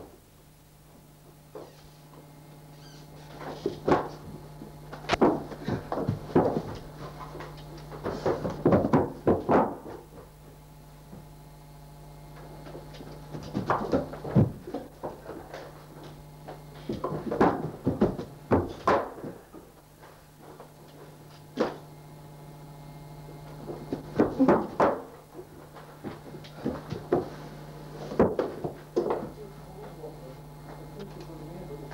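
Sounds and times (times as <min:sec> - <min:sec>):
steady low hum: 0:00.0 - 0:31.9
thumps and bangs against door: 0:08.0 - 0:10.1, 0:16.9 - 0:19.4.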